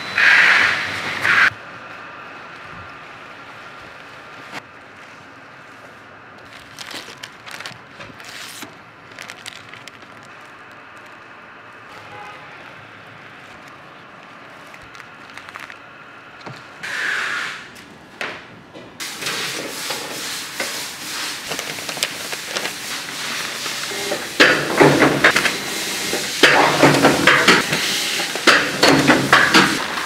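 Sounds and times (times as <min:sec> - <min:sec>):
machine whirring and clattering: 0:21.4 - 0:30.0.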